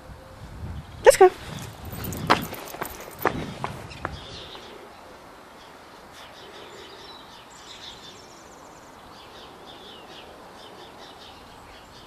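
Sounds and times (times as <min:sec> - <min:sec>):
outdoor background hiss: 0:00.0 - 0:12.0
small birds chirping: 0:00.8 - 0:12.0.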